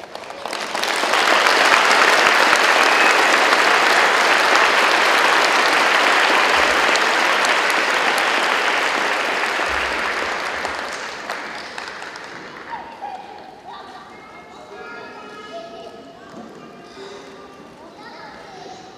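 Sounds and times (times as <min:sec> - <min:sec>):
crowd applauding: 0:00.0 - 0:13.5.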